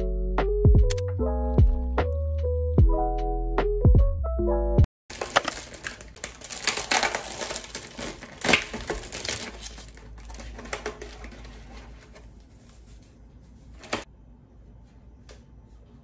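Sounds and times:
plastic film peeling: 5.1s - 12.2s
plastic packaging crinkling: 5.1s - 12.4s.

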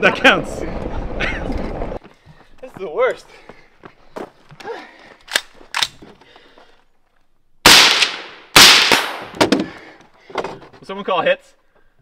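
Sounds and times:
running footsteps: 0.6s - 6.8s
heavy breathing: 2.0s - 2.6s, 3.2s - 5.4s, 6.0s - 7.0s, 9.6s - 10.7s
loud gunshots with echo: 7.7s - 9.3s
quick gunshot cracks: 7.7s - 9.4s.

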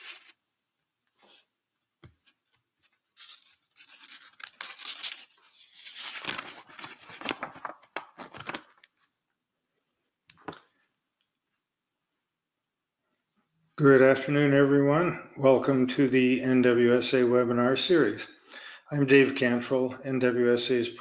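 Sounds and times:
handling noise rustling and scraping: 0.0s - 0.4s, 1.0s - 7.8s.

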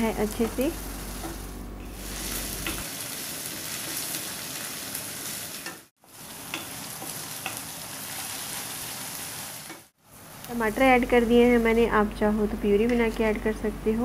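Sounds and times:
onion and garlic sizzling in oil: 0.0s - 13.4s.

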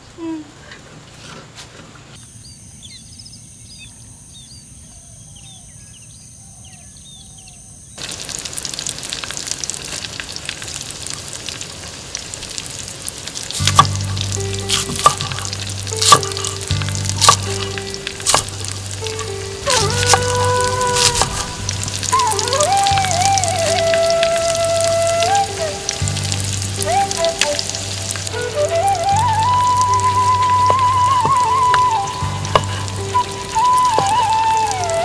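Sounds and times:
food frying and sizzling: 8.0s - 35.0s
knife chopping on wooden board: 13.6s - 14.0s, 14.7s - 16.4s, 17.2s - 18.7s, 21.0s - 21.4s.

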